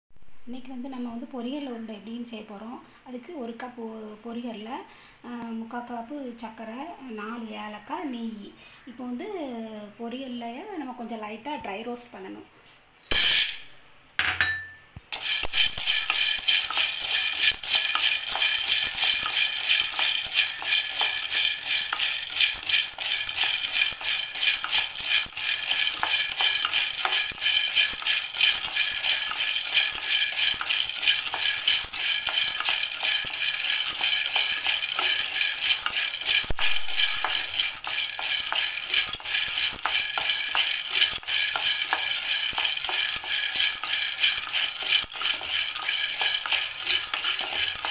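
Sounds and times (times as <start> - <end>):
grains rattling in a steel pan: 15.1 - 47.9.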